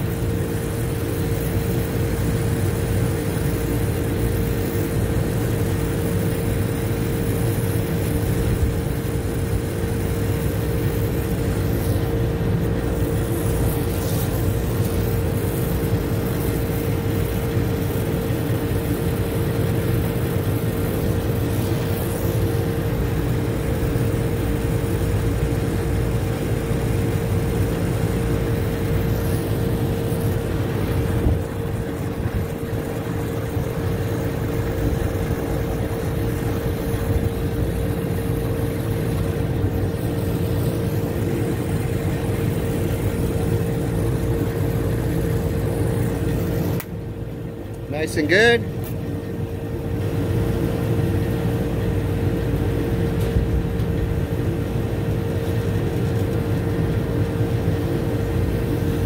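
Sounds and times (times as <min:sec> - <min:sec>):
steady hum: 0:00.0 - 0:59.0
torch flame hissing: 0:00.0 - 0:59.0.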